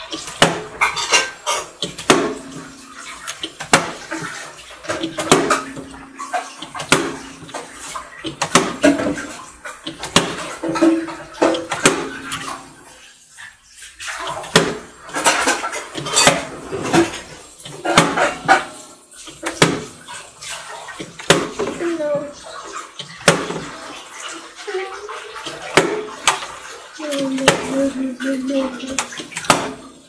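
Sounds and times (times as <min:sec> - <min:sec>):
water sloshing in bottle: 0:00.0 - 0:30.0.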